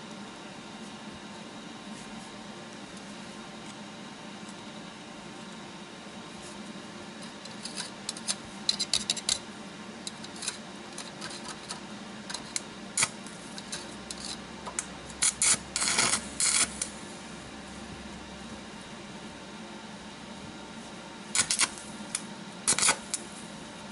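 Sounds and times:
arc welding crackle and sizzle: 0.0s - 23.9s.

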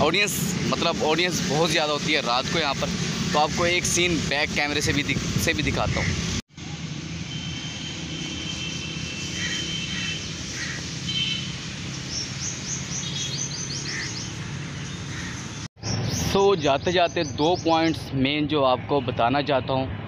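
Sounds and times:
birds chirping: 8.2s - 20.0s.

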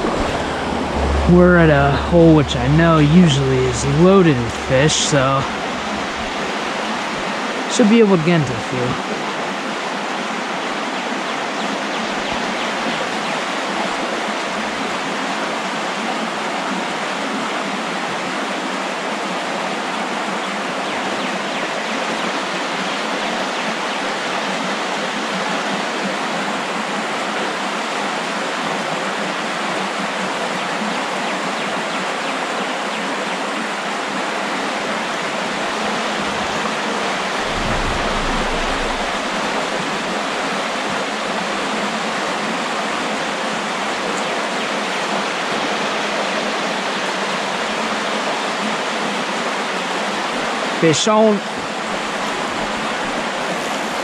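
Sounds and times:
creek rushing over rocks: 0.0s - 11.5s, 33.9s - 44.0s.

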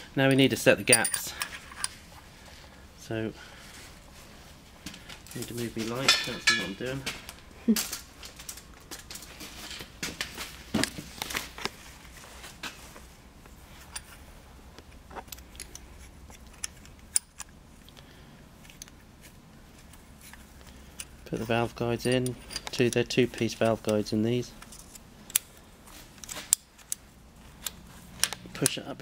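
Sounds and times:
metallic clicks of small parts: 15.2s - 18.0s, 24.6s - 25.6s.

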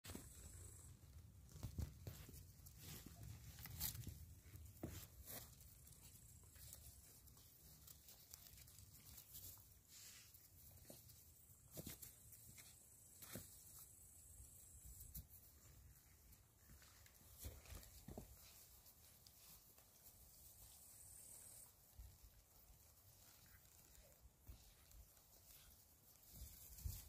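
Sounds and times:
puppies scuffling: 0.1s - 14.0s, 14.8s - 27.0s.

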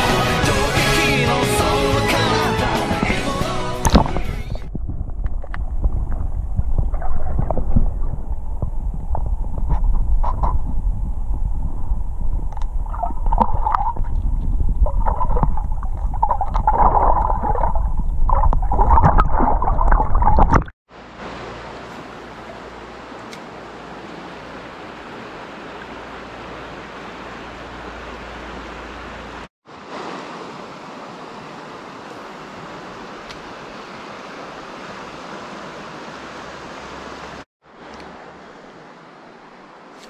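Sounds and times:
water rushing over stones: 0.0s - 40.0s
underwater gurgling and rumble: 3.9s - 20.7s.

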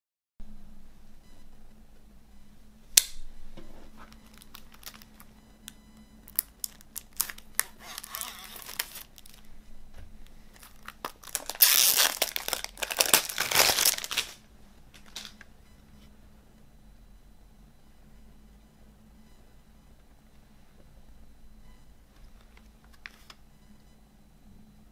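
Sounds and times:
plastic wrap crinkling and tearing: 4.2s - 5.3s, 6.3s - 9.5s, 10.5s - 14.4s, 15.0s - 15.4s
knife slitting shrink-wrap: 6.6s - 9.4s, 10.8s - 14.4s.

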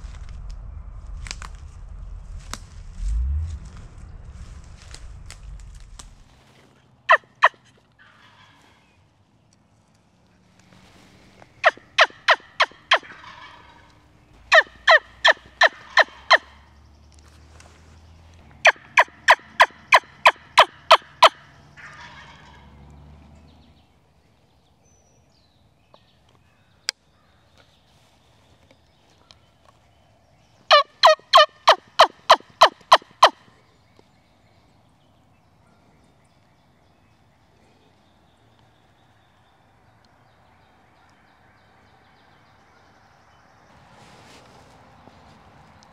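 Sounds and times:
turkey call yelping: 11.6s - 16.6s, 18.6s - 22.7s, 30.7s - 33.4s.

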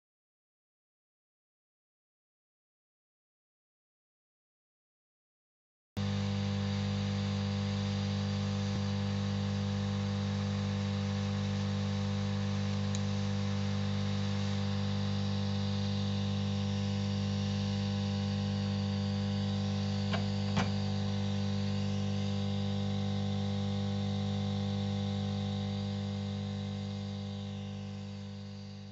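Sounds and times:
electrical hum: 6.0s - 28.9s.

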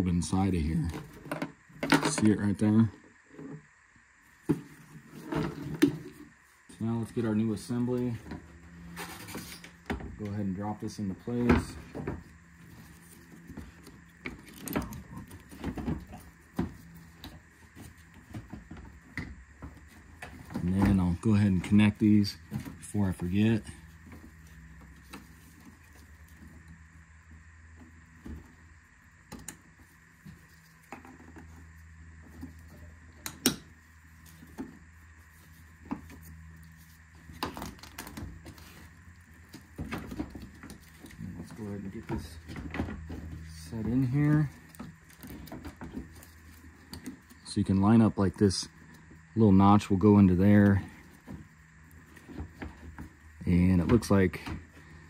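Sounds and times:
low steady hum: 0.0s - 55.0s.

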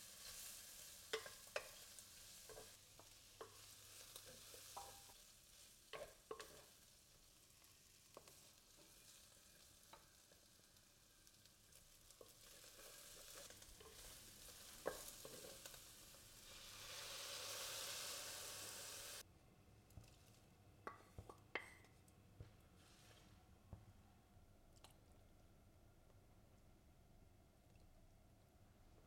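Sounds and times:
food sizzling in a pot: 0.0s - 19.3s.

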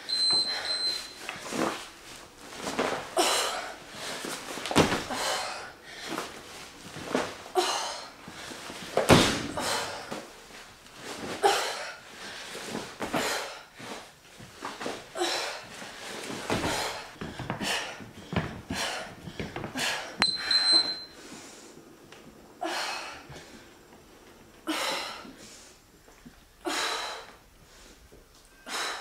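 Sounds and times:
woman breathing hard: 3.2s - 4.4s, 5.0s - 6.4s, 7.5s - 8.6s, 9.5s - 10.3s, 11.4s - 14.0s, 15.1s - 21.8s, 22.6s - 23.8s, 24.6s - 25.9s, 26.6s - 29.0s
heavy thud: 9.0s - 9.8s.

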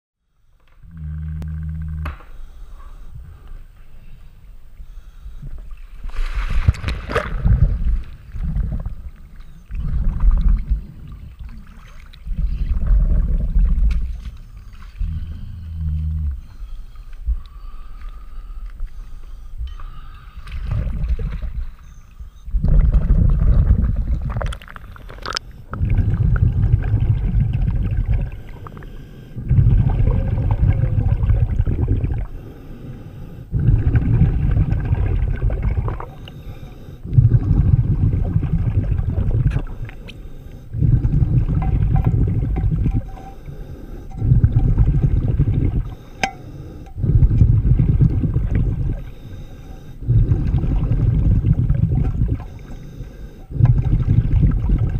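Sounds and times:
exhaled bubbles underwater: 0.8s - 2.1s, 5.5s - 17.4s, 20.4s - 54.9s
regulator inhalations: 14.5s - 20.8s, 28.3s - 29.6s, 32.2s - 34.0s, 36.0s - 38.0s, 39.6s - 41.6s, 42.9s - 47.9s, 48.8s - 51.0s, 52.3s - 53.8s.

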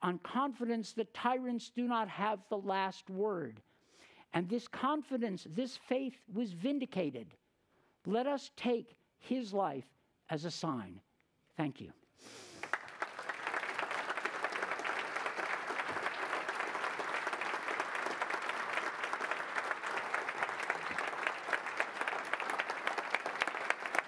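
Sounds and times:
audience applauding: 12.6s - 24.0s.

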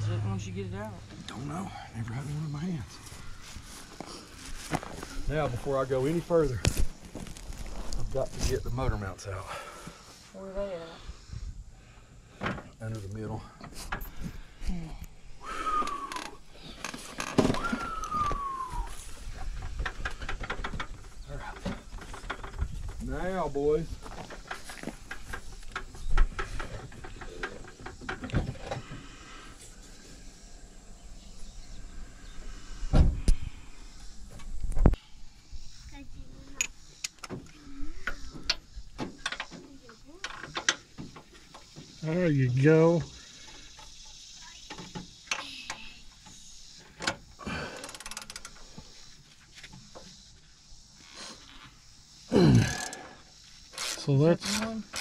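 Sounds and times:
loud thumps: 32.9s - 33.4s.

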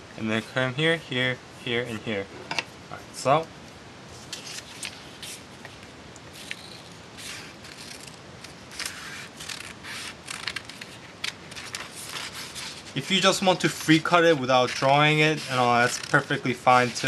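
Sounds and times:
paper rustling: 4.2s - 17.0s
scissors snipping paper: 6.4s - 17.0s.

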